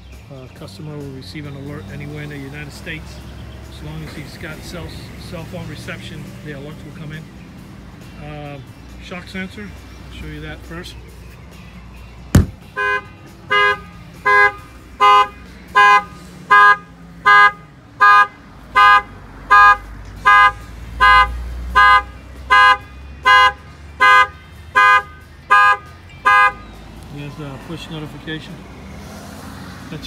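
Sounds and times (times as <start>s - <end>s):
knock on window glass: 12.4s - 12.6s
car alarm horn honking: 12.4s - 26.6s.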